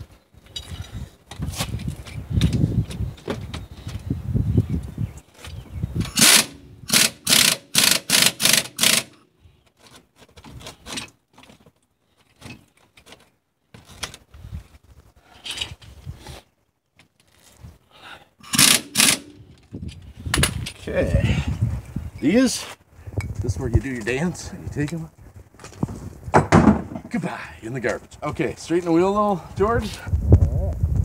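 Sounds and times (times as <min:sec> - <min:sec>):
pneumatic impact wrench bursts: 0:06.0 - 0:09.2, 0:18.5 - 0:19.5.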